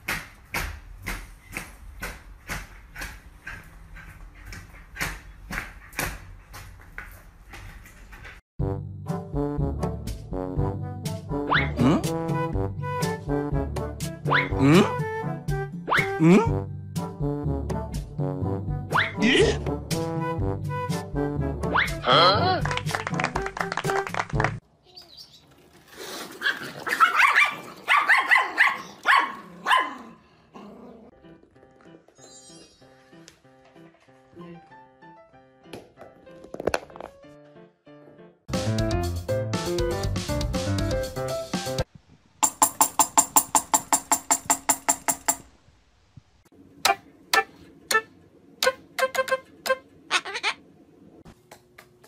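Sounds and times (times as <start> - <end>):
dog barking: 26.4 - 30.2.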